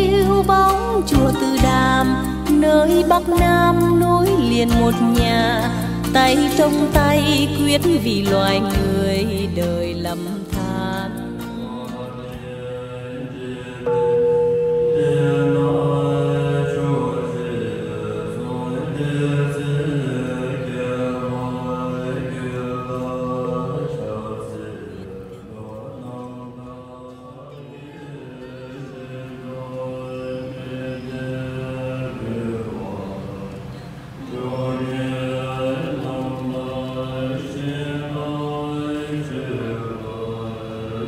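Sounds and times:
group chanting: 0:11.6 - 0:41.0.

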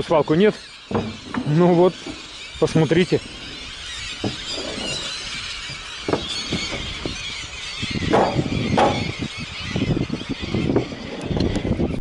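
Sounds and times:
flock of gulls calling: 0:00.0 - 0:12.0.

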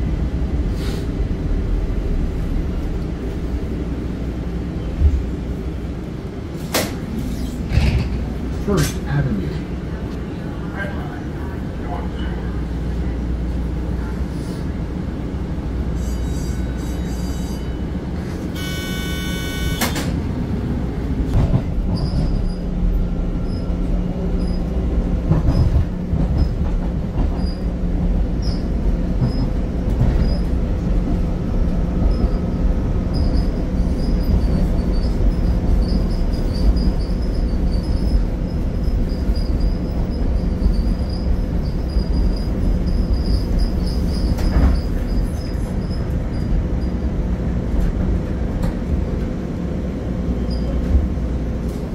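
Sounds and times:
train rumbling: 0:00.0 - 0:51.9
high ringing tone: 0:18.6 - 0:19.9.

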